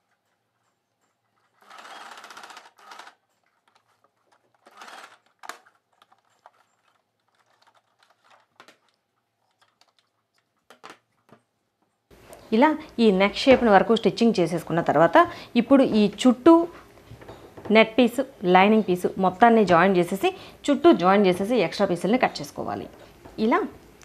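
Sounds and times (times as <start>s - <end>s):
sewing machine stitching: 1.4s - 3.3s, 4.3s - 8.4s.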